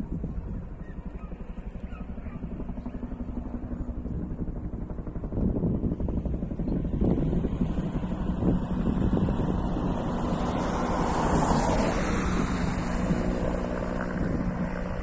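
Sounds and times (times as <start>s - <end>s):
distant helicopter rotor thudding: 0.0s - 15.0s
wind on microphone: 0.0s - 15.0s.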